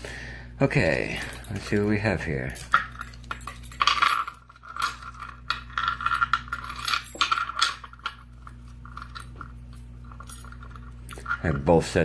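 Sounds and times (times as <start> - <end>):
keys jingling against lock: 0.7 - 8.1.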